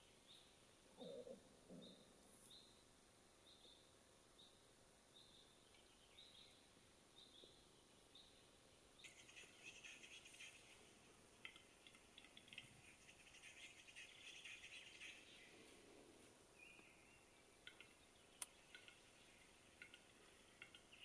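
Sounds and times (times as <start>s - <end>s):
bird display song clicks: 5.2s - 6.6s, 11.4s - 15.5s, 16.6s - 21.0s.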